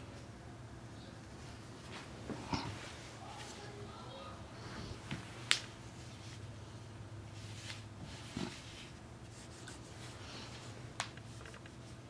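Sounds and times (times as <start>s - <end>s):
steady low hum: 0.0s - 12.0s
gloves rubbing on fabric: 7.3s - 12.0s.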